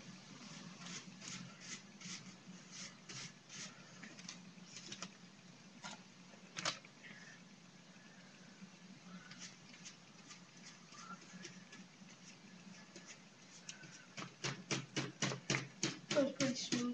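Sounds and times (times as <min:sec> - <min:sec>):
steady low hum: 0:00.0 - 0:16.9
paintbrush strokes swishing: 0:00.4 - 0:04.0, 0:09.1 - 0:14.2.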